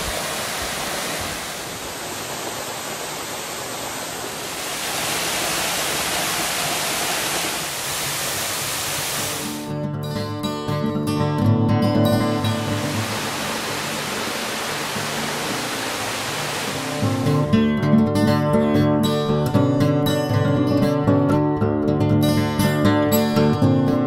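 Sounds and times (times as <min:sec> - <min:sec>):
creek water rushing: 0:00.0 - 0:09.7, 0:12.1 - 0:17.5
plucked guitar music: 0:09.6 - 0:13.5, 0:16.8 - 0:24.0.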